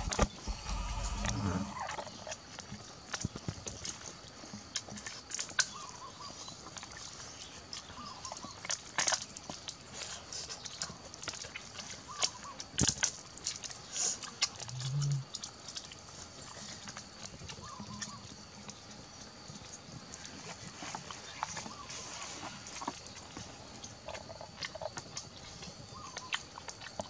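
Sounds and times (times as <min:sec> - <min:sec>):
chewing with wet clicks: 0:00.1 - 0:21.8, 0:22.5 - 0:27.0.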